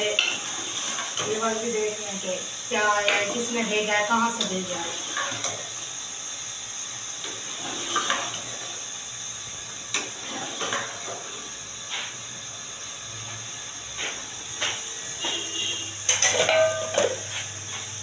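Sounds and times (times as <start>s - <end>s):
gas burner hiss: 0.0s - 18.0s
metal ladle clinking in pot: 16.1s - 17.2s.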